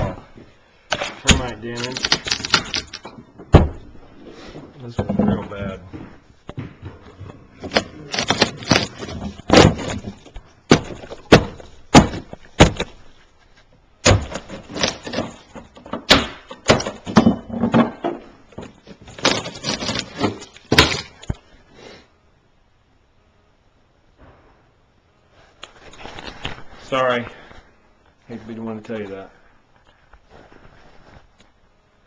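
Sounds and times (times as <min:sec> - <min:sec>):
knocks and bangs on wood: 0:02.1 - 0:04.0, 0:04.9 - 0:13.0, 0:14.0 - 0:21.4
scraping and rustling: 0:03.9 - 0:15.9, 0:17.0 - 0:21.5, 0:25.3 - 0:27.7, 0:30.2 - 0:31.6.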